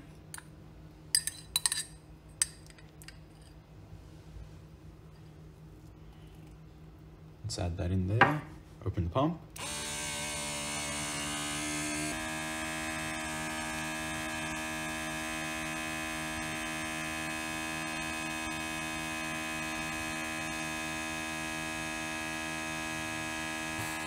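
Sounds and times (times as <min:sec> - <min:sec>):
vacuum pump humming: 0:09.6 - 0:24.0.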